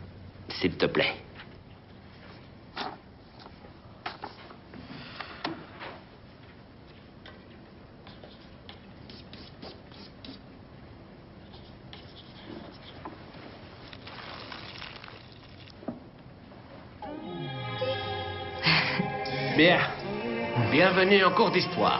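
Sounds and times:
clothing and furniture rustling: 12.6s - 15.4s.

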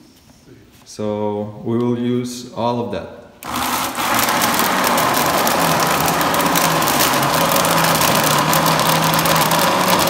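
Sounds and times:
electric blender running: 3.4s - 10.0s.

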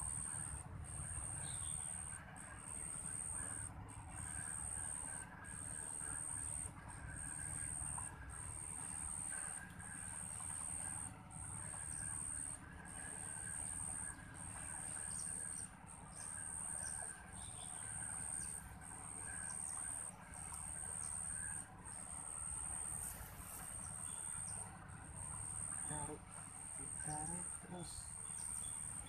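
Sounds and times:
faint bird chirps: 1.3s - 2.1s.

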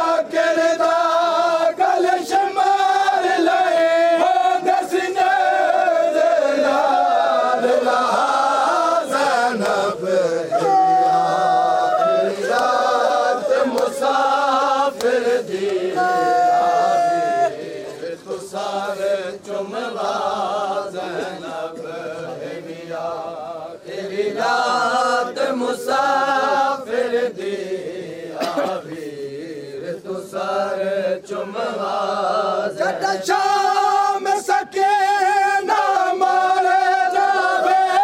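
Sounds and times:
men chanting together: 0.0s - 38.0s.

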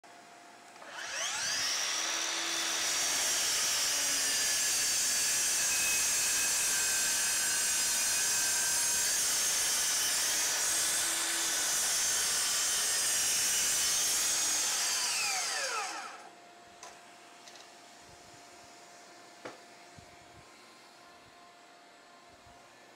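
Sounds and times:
miter saw cutting wood: 0.8s - 16.3s.

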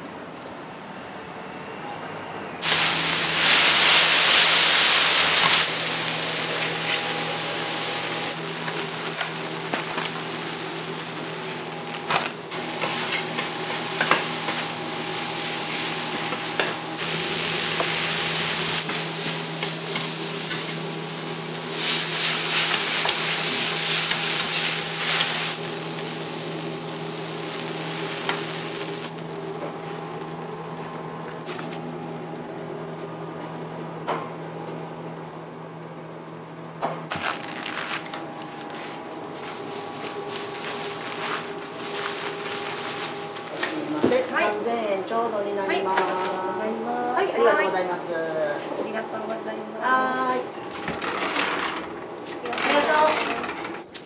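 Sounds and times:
noodles sizzling on griddle: 2.6s - 32.3s, 39.3s - 44.6s
steady low hum: 2.7s - 50.8s.

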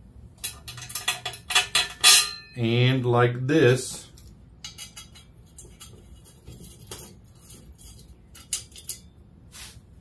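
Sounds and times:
metal tubes clicking: 0.4s - 2.6s, 3.9s - 9.2s.

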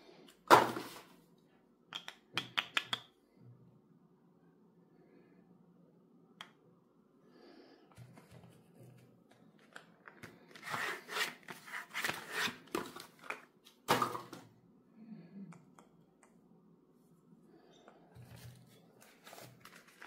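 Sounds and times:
packaging rustling and crinkling: 18.4s - 20.0s.

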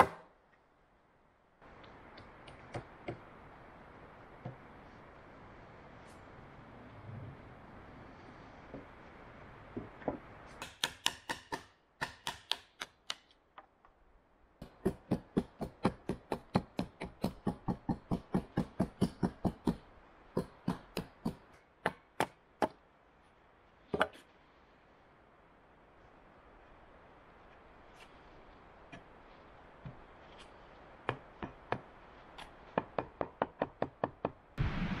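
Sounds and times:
hatchet chopping wooden stick: 10.6s - 13.2s, 14.6s - 19.8s, 20.4s - 22.8s.

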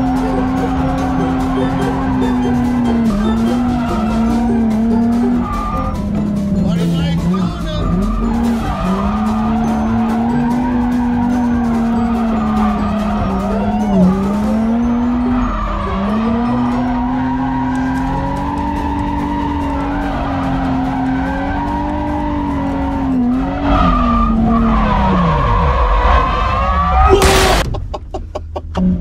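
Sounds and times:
car engine revving high: 0.0s - 27.4s
tyres skidding: 0.0s - 29.0s.

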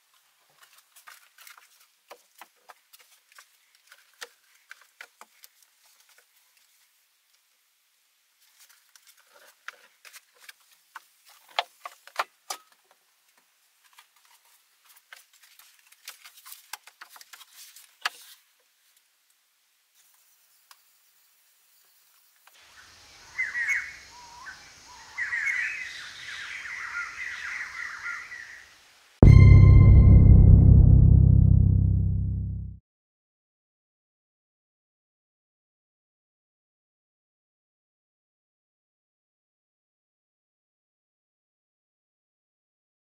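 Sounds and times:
forest background: 0.0s - 31.5s
birds chirping and calling: 23.3s - 28.6s.

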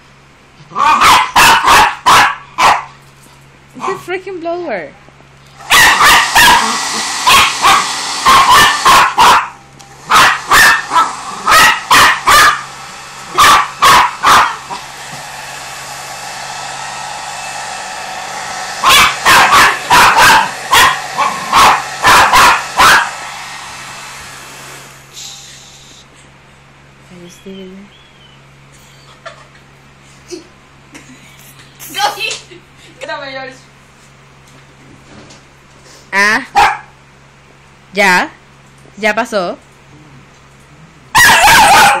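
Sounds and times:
puppy barking: 0.7s - 3.0s, 3.8s - 4.1s, 5.6s - 14.8s, 18.8s - 23.3s, 36.5s - 37.0s, 41.1s - 42.0s
electric blower rushing: 5.4s - 26.1s.

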